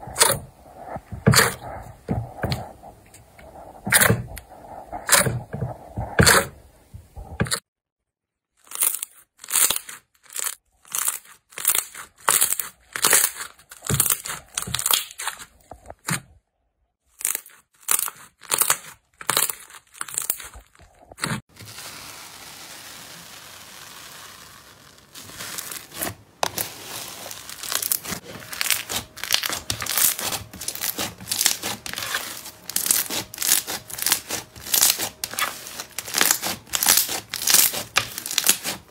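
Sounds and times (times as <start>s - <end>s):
crackling of kneaded foam slime: 0.0s - 7.4s, 8.6s - 16.2s, 17.0s - 38.9s
slime popping and squelching: 8.6s - 16.1s, 17.2s - 38.8s.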